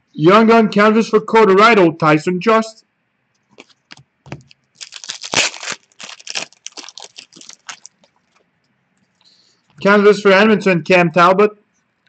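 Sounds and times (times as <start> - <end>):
trading cards rustling and clicking: 3.5 - 8.4.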